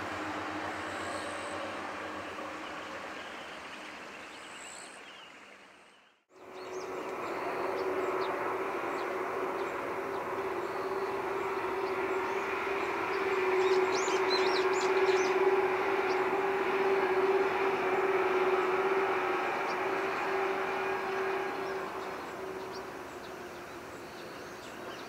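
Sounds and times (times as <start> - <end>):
train running rumble: 0.0 - 3.6, 6.4 - 25.0
steady hum: 6.4 - 25.0.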